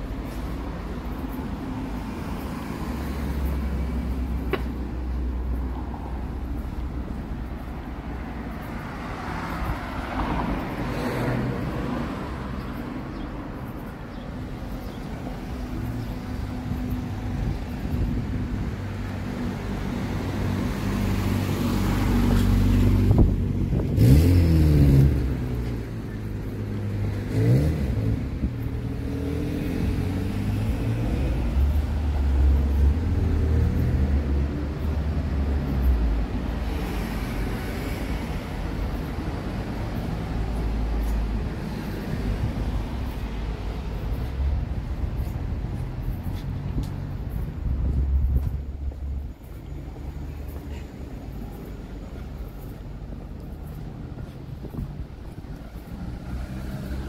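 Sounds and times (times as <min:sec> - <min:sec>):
road traffic: 0:00.0 - 0:57.0
car engine revving: 0:23.8 - 0:25.4.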